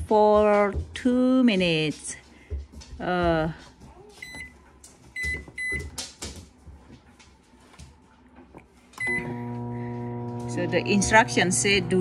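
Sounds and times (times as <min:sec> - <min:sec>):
microwave keypad beeping: 0:09.0 - 0:09.3
microwave oven humming: 0:09.0 - 0:12.0.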